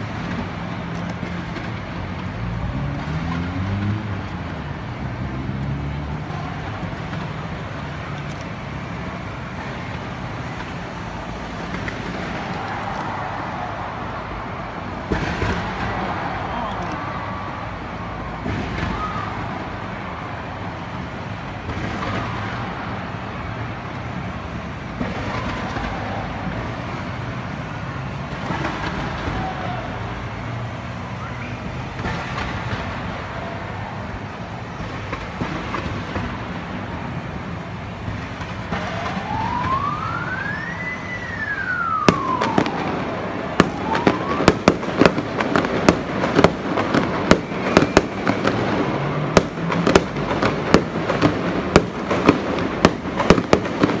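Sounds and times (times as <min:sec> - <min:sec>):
firework shells cracking and banging: 0:00.0 - 0:03.6, 0:09.6 - 0:14.1, 0:41.7 - 0:54.0
firework fountains rising: 0:00.0 - 0:54.0
siren-like firework tone: 0:08.6 - 0:21.2, 0:21.8 - 0:54.0.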